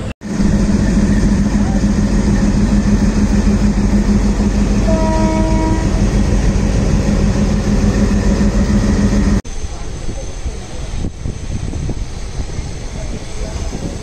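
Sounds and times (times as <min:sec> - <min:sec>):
diesel locomotive chugging: 0:00.0 - 0:14.0
train horn note: 0:04.8 - 0:06.1.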